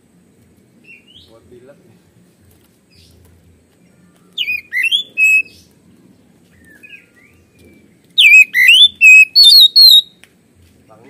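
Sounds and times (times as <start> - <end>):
bird singing whistled phrases: 4.4 - 5.6, 6.6 - 10.2.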